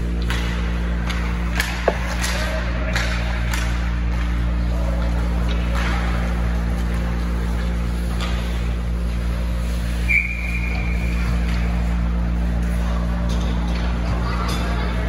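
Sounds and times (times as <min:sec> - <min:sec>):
referee's whistle: 0:10.0 - 0:11.2.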